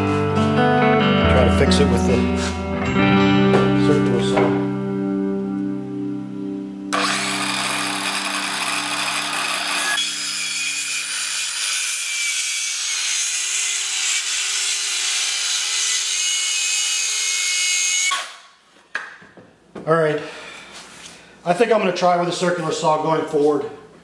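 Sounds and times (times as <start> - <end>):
circular saw cutting wood: 6.9 - 18.4.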